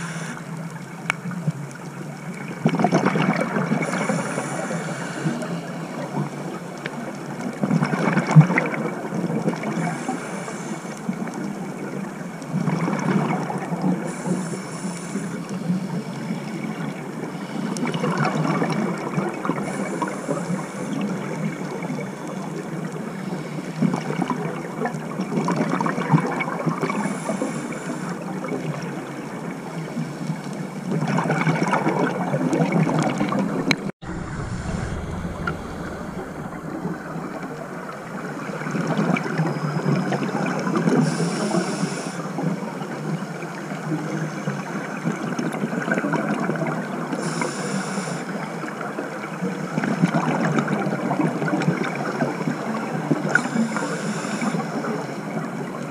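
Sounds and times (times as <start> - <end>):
regulator inhale hiss: 0.0 - 0.7, 3.8 - 6.4, 9.8 - 11.4, 14.0 - 16.1, 19.6 - 21.4, 27.0 - 28.3, 41.0 - 42.5, 47.2 - 48.5, 53.3 - 55.2
exhaled bubbles gushing: 2.2 - 10.1, 30.9 - 41.6.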